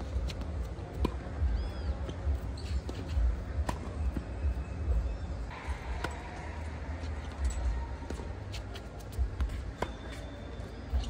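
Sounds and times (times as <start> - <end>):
tennis ball bouncing: 0.0 - 4.5, 8.0 - 10.2.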